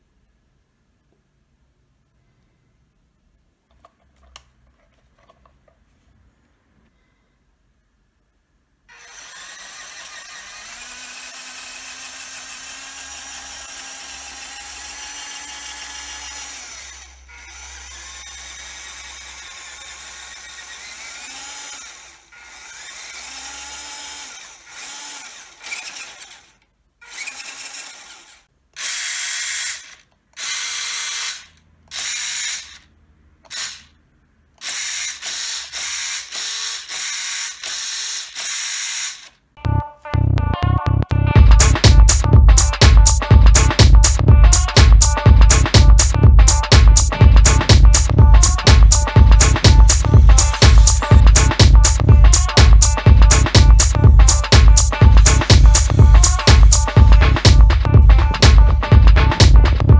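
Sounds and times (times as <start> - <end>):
electric motor and gearbox whirring: 8.9 - 33.9, 34.6 - 39.4, 46.4 - 59.8.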